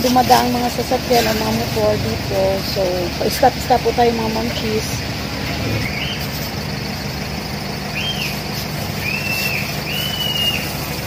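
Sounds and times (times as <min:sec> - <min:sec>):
street traffic rumble: 0:00.0 - 0:11.0
vehicle engine running: 0:00.0 - 0:11.0
bird whistled calls: 0:05.5 - 0:06.3, 0:07.9 - 0:11.0.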